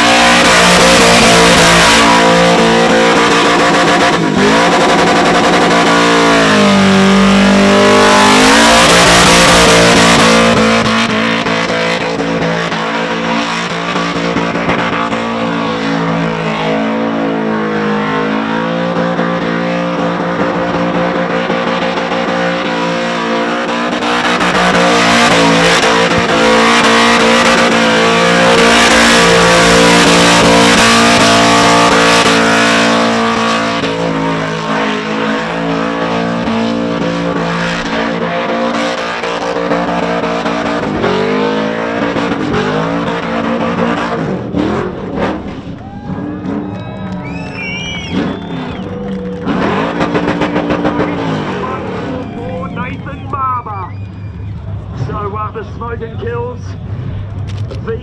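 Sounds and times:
car engine at high revs: 0.0s - 58.0s.

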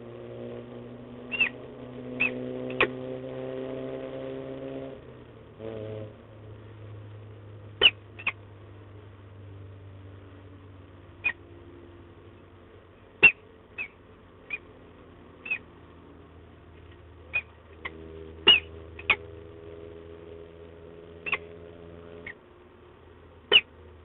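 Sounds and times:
low steady hum: 0.0s - 24.0s
falcon chip calls: 1.3s - 1.6s, 2.2s - 2.9s, 7.8s - 8.4s, 11.2s - 11.5s, 13.2s - 14.7s, 15.4s - 15.7s, 16.8s - 19.3s, 21.2s - 21.5s, 23.5s - 23.8s.

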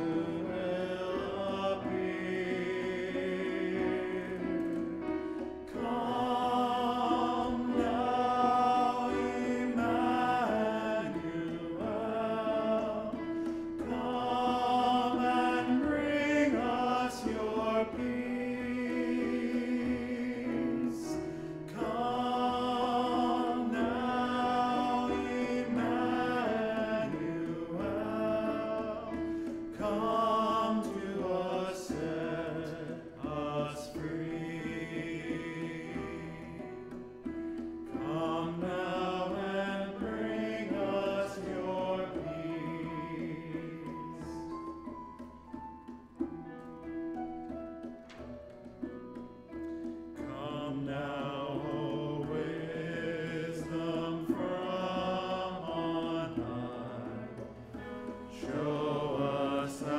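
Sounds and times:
choir and congregation singing hymn: 0.0s - 45.3s, 49.2s - 59.9s
instrumental accompaniment: 0.0s - 59.9s.

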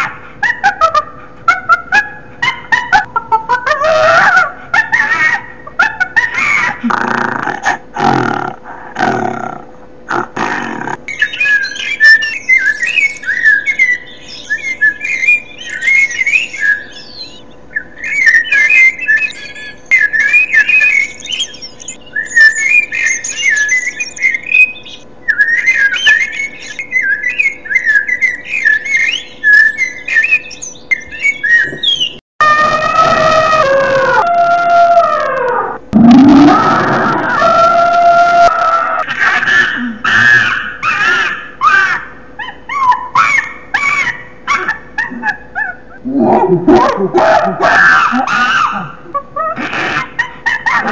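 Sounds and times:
bird chirps and whistles: 11.1s - 32.2s, 39.1s - 48.8s
long howl falling in pitch: 32.4s - 39.0s
low growl: 35.9s - 37.5s.

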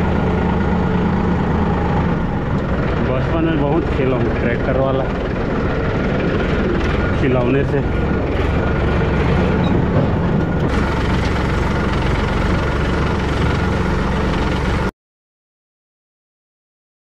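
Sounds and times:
tractor diesel engine running: 0.0s - 14.9s.

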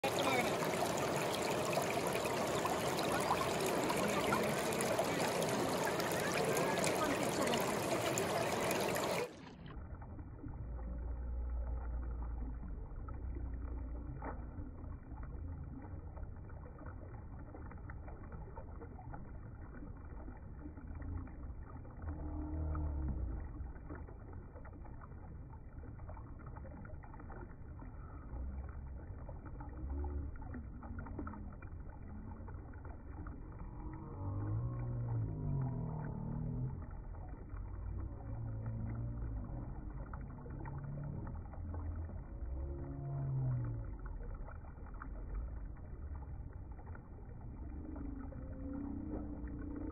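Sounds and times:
river rushing over rocks: 0.0s - 9.3s.

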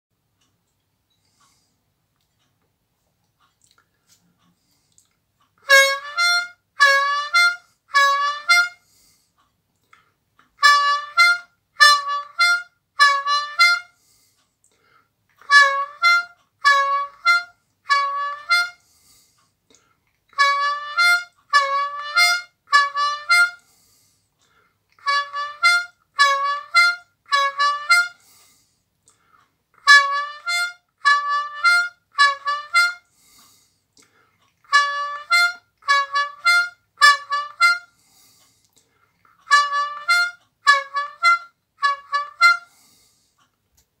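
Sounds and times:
harmonica playing: 5.6s - 9.1s, 10.6s - 14.0s, 15.4s - 18.8s, 20.3s - 23.8s, 25.0s - 28.4s, 29.8s - 33.3s, 34.7s - 38.1s, 39.4s - 43.0s.

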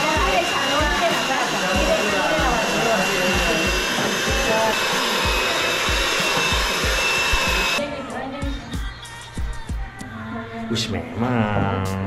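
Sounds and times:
electric hand mixer whirring: 0.0s - 7.9s.

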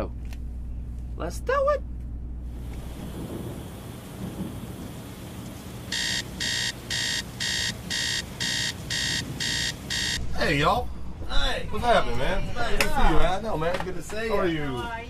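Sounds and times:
low rumbling hiss: 0.0s - 15.0s
alarm beeping: 5.9s - 10.2s.

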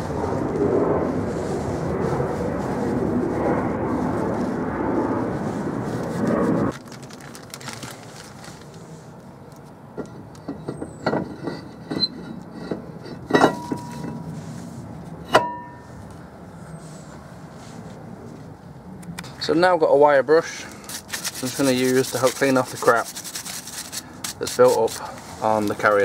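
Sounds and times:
steady rushing noise: 0.0s - 6.8s.

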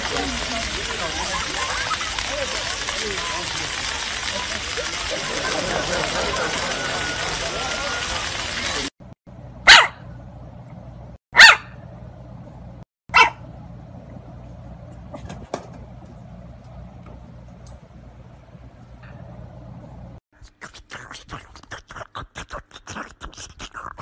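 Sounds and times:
puppy barking: 9.6s - 10.1s, 11.4s - 11.8s, 13.1s - 13.4s.

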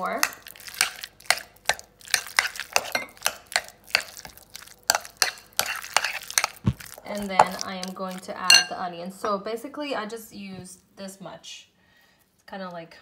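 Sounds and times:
utensil scraping glass bowl: 4.9s - 7.6s.

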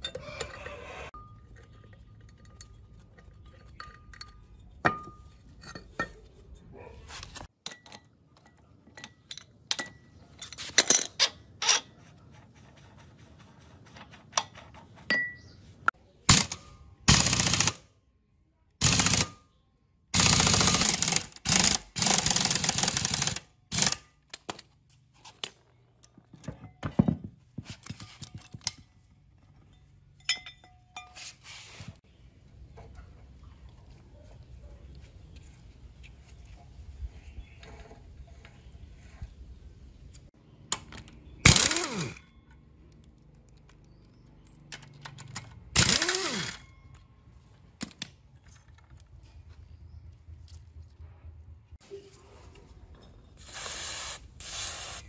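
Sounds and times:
metal tools clinking: 0.0s - 12.0s, 24.2s - 31.8s.

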